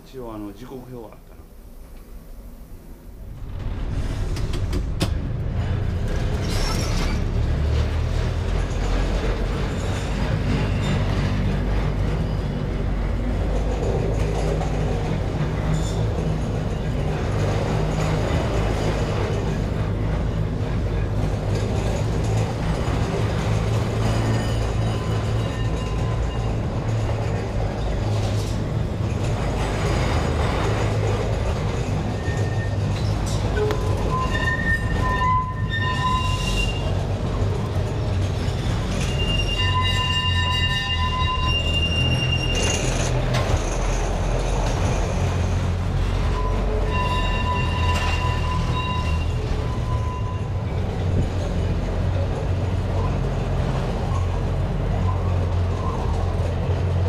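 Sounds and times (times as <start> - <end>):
wheels rumbling on track: 0.0 - 57.0
metal wheel squeal: 6.2 - 7.6, 23.6 - 27.9, 31.7 - 37.4, 38.3 - 44.2, 46.2 - 51.6.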